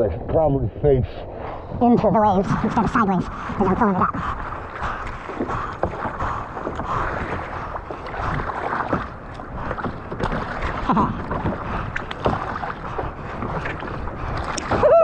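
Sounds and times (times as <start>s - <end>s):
wind on microphone: 0.0s - 15.0s
water sloshing around kayak: 1.4s - 15.0s
small splashes and knocks: 4.7s - 15.0s.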